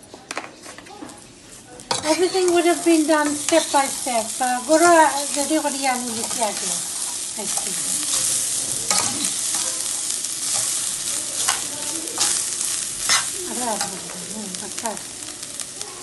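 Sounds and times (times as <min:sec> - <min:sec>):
vermicelli sizzling in pot: 0:00.7 - 0:16.0
metal spoon clinking and scraping pot: 0:06.1 - 0:14.1.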